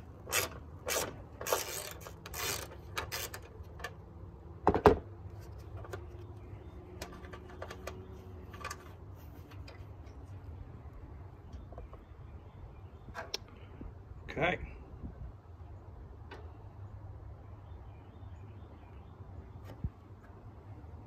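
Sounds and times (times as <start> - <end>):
metallic clicks and scrapes of bolts: 0.0 - 4.0.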